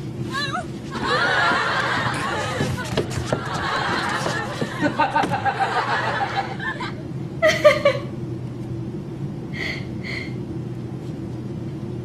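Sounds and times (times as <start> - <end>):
woman laughing: 0.3 - 8.1.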